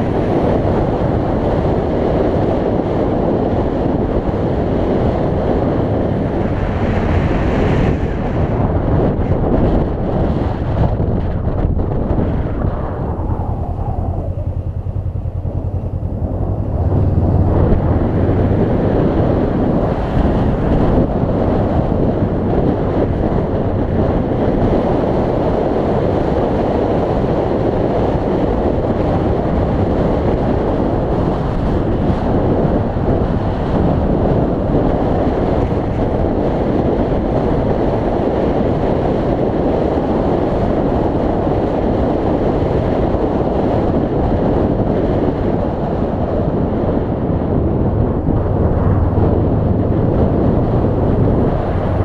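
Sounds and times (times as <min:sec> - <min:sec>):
wind rushing over microphone: 0:00.0 - 0:52.0
motorcycle engine low note: 0:09.9 - 0:24.0, 0:46.6 - 0:52.0.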